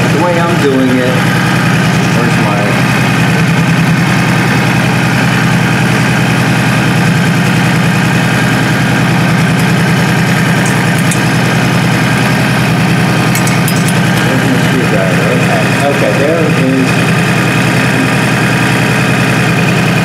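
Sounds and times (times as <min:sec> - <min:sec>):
motorcycle engine idling: 0:00.0 - 0:20.0.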